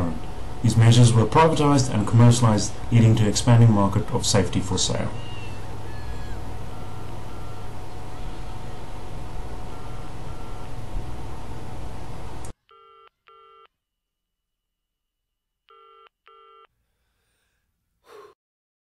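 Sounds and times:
loud steady noise: 0:00.0 - 0:12.5.

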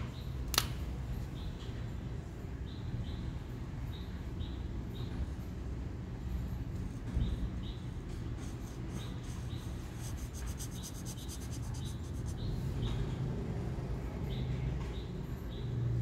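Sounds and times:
marker scratching on paper: 0:06.8 - 0:12.7.

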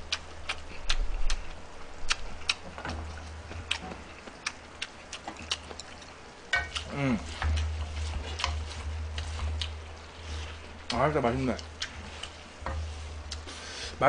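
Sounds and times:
low hum: 0:05.4 - 0:14.0
chopsticks clicking on metal pan: 0:06.5 - 0:09.8.

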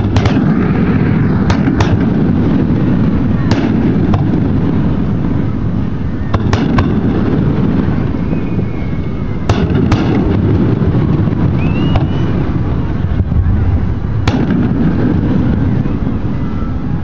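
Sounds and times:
fireworks bursting: 0:00.0 - 0:17.0
steady low rumble: 0:00.0 - 0:17.0
faint whistle: 0:07.9 - 0:09.5, 0:11.5 - 0:13.0, 0:16.3 - 0:17.0.

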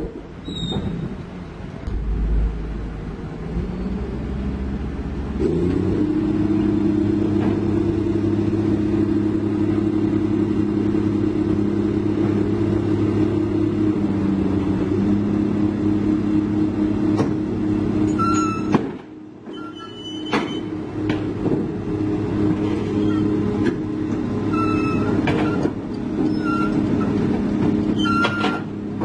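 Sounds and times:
excavator diesel engine running: 0:00.0 - 0:29.0
short high squeaks: 0:00.4 - 0:01.2, 0:18.1 - 0:18.8, 0:19.5 - 0:20.7, 0:22.8 - 0:23.4, 0:24.5 - 0:25.6, 0:26.2 - 0:27.2, 0:27.9 - 0:28.7.

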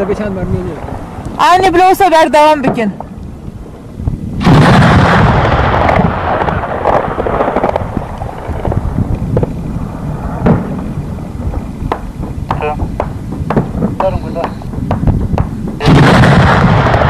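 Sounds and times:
heavy explosion: 0:04.0 - 0:17.0
sharp gunshots: 0:04.4 - 0:07.9, 0:11.9 - 0:17.0.

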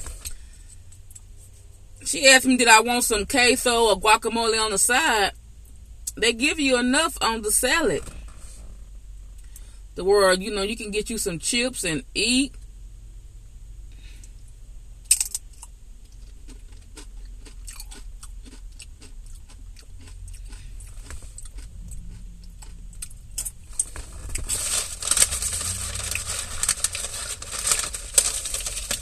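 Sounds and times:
crunching tortilla chips: 0:15.1 - 0:29.0.

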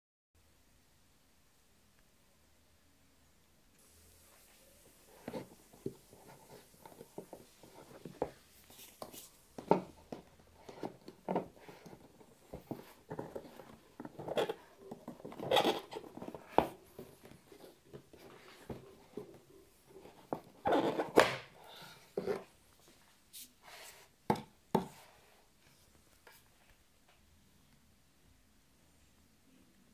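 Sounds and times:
cardboard box rustling and scraping: 0:05.1 - 0:21.3.

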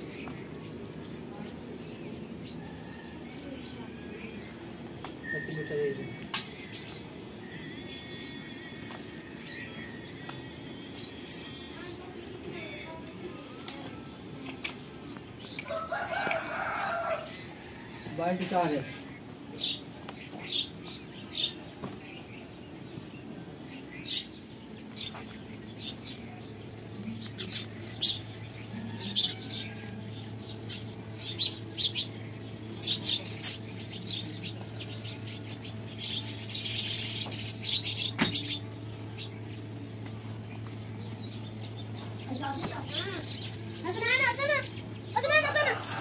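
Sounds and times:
small birds chirping: 0:00.0 - 0:46.0
steady low hum: 0:18.8 - 0:46.0.

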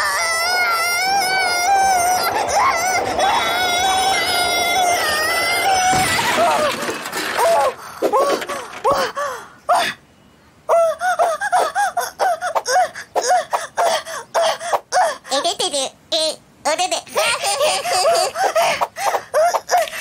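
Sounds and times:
cartoon voices laughing: 0:17.1 - 0:19.8.

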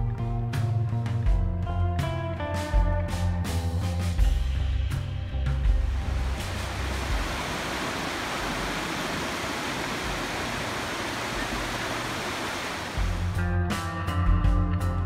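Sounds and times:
background music: 0:00.0 - 0:07.8, 0:12.9 - 0:15.0
creek water running over rocks: 0:05.9 - 0:13.4.

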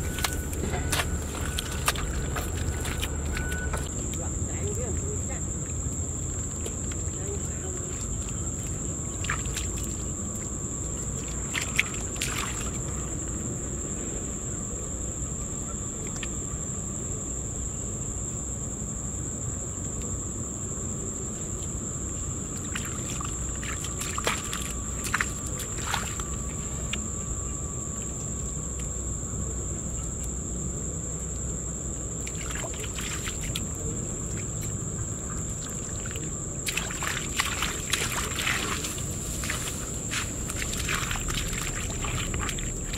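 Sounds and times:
high-pitched drone: 0:00.0 - 0:03.9
hands squelching wet mud: 0:00.0 - 0:04.2, 0:06.4 - 0:13.0, 0:22.5 - 0:27.0, 0:32.2 - 0:42.9
low outdoor rumble: 0:00.0 - 0:42.9.

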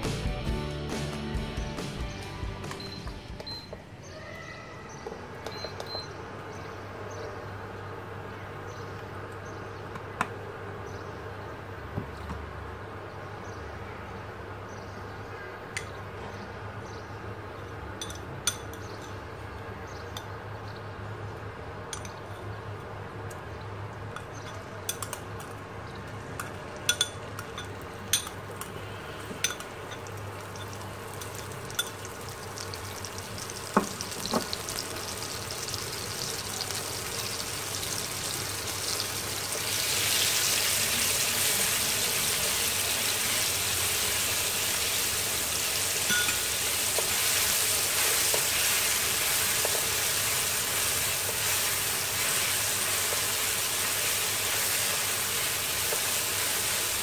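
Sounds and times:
spoon clinking on glass bowl: 0:29.4 - 0:32.1, 0:46.1 - 0:46.5
paste sizzling in hot oil: 0:29.7 - 0:57.0.

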